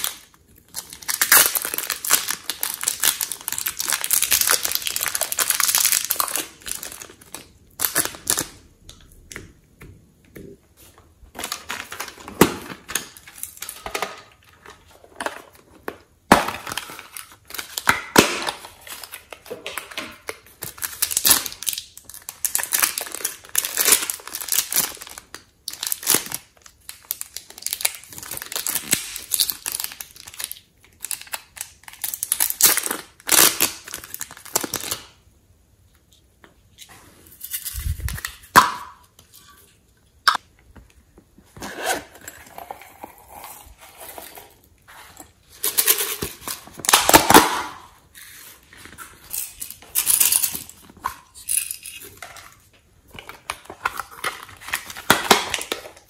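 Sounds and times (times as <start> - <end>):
plastic bags crinkling: 0.0 - 8.6, 16.3 - 35.1.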